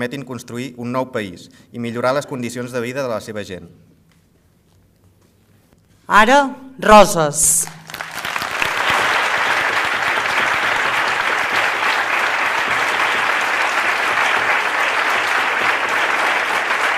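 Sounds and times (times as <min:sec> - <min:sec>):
large audience applauding: 0:07.8 - 0:16.9.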